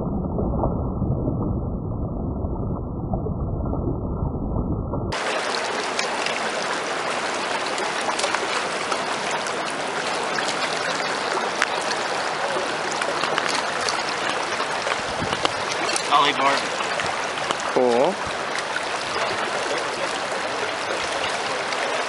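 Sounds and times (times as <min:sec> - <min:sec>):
muffled low rumble: 0:00.0 - 0:05.2
small splashes and ticks: 0:05.1 - 0:22.0
river current rushing: 0:05.2 - 0:22.0.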